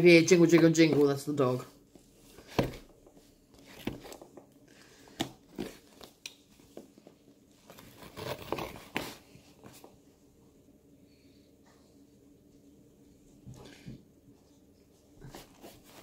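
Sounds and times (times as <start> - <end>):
packaging rustling: 3.6 - 4.5.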